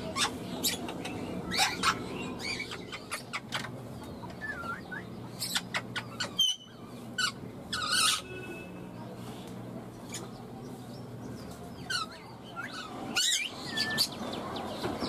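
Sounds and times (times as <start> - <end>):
parakeet chirps and squeaks: 0.0 - 3.8, 4.4 - 8.7, 10.0 - 14.8
parakeet squawk: 1.5 - 3.7, 5.4 - 8.4.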